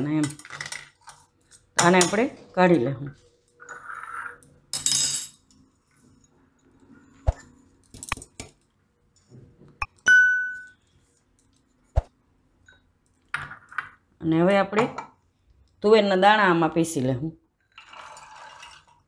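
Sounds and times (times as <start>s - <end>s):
bell-like ding: 9.8s - 10.8s
steel jar scraping: 17.8s - 19.0s.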